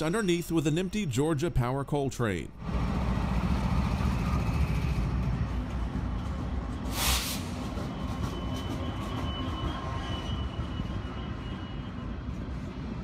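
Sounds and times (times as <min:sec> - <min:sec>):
diesel locomotive rumble: 0:02.6 - 0:13.0
brief hiss: 0:06.8 - 0:07.7
high wheel squeal: 0:07.4 - 0:12.3.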